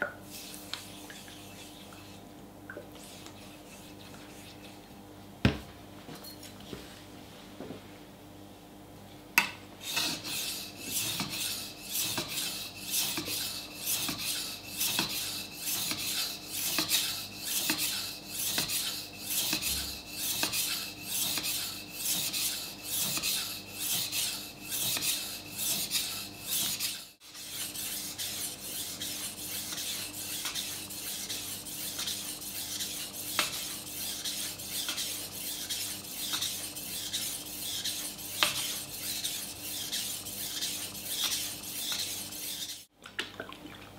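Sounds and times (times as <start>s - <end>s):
knife rasping on sharpening stone: 9.8s - 42.9s.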